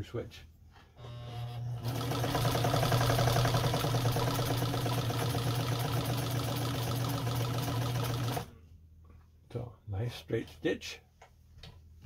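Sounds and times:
sewing machine stitching: 0:01.1 - 0:08.5.

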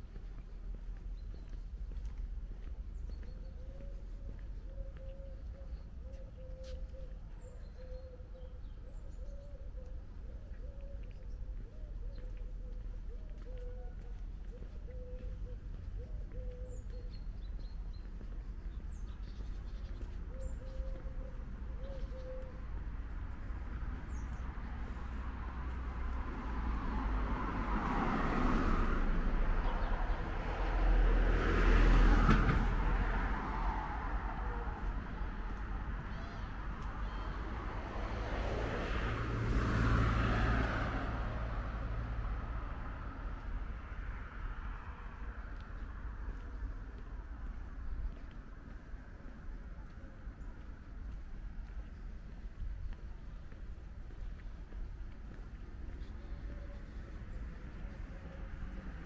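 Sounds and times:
birds chirping: 0:00.0 - 0:26.2
low traffic rumble: 0:00.0 - 0:59.0
vehicles passing: 0:00.0 - 0:59.0.

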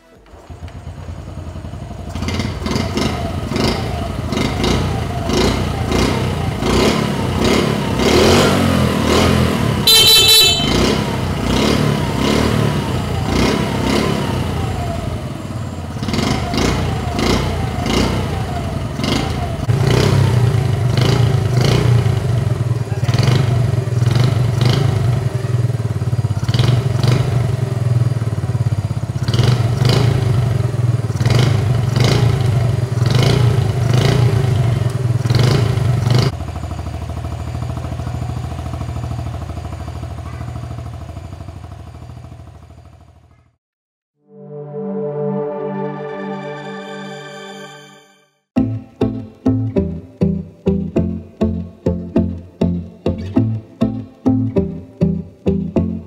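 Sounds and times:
motorcycle engine revving and idling: 0:00.0 - 0:43.6
horn beep: 0:09.8 - 0:11.2, 0:44.2 - 0:52.3.

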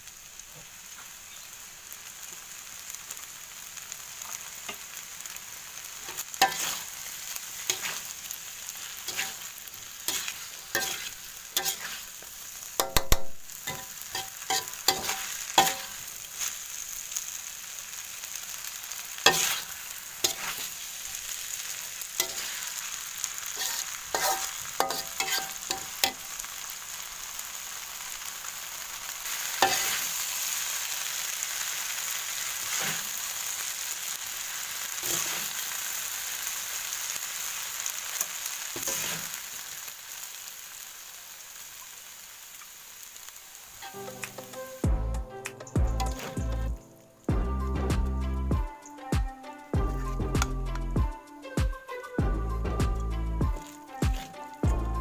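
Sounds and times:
noodles sizzling in a wok: 0:00.0 - 0:55.0
metal spatula scraping a pan: 0:06.1 - 0:12.2, 0:12.8 - 0:16.6, 0:19.2 - 0:21.6, 0:22.2 - 0:26.3, 0:29.5 - 0:30.2, 0:32.6 - 0:33.2, 0:35.0 - 0:35.6, 0:38.8 - 0:39.4, 0:46.0 - 0:46.7.

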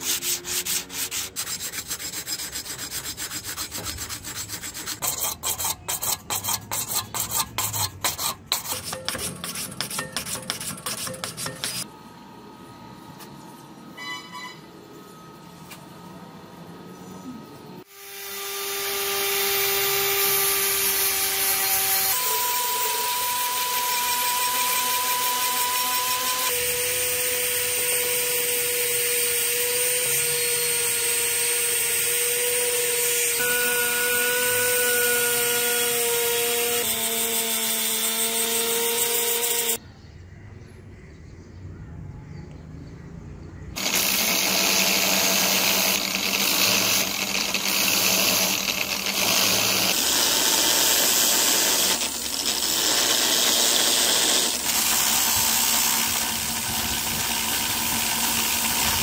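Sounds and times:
electric power tool running: 0:17.8 - 0:39.8, 0:43.8 - 0:59.0.

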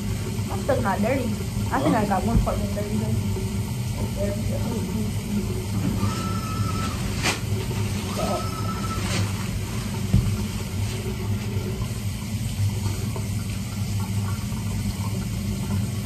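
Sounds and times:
low room rumble: 0:00.0 - 0:16.0
paper towels rustling: 0:05.7 - 0:12.0.

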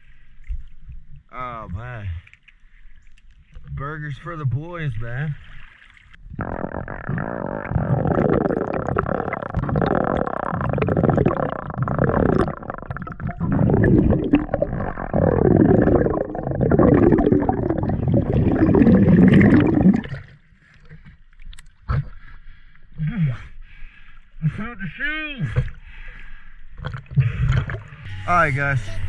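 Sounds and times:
underwater river gurgling: 0:00.0 - 0:22.3.

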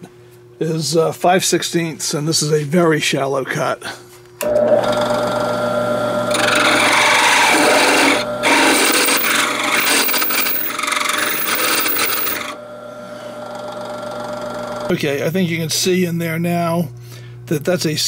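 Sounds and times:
drill press humming: 0:04.4 - 0:14.9
drill bit scraping steel: 0:06.3 - 0:12.5.

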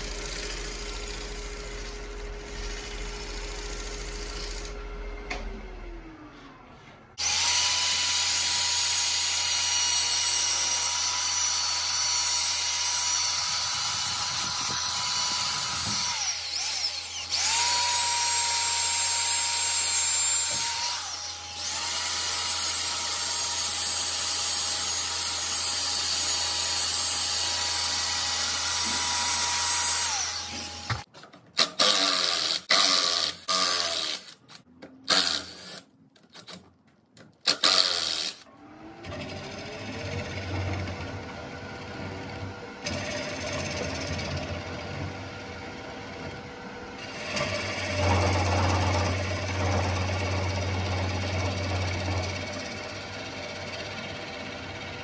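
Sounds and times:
wood lathe humming: 0:07.2 - 0:31.1
power drill sanding: 0:07.2 - 0:35.8, 0:37.5 - 0:38.4.

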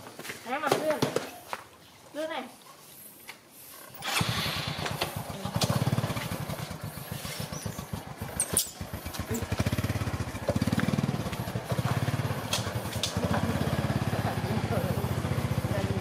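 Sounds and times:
motorbike engine revving: 0:03.8 - 0:16.0.

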